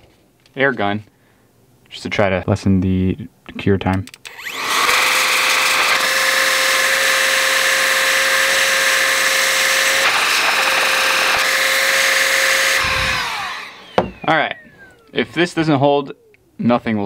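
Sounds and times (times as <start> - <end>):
electric air duster blowing: 4.3 - 15.9.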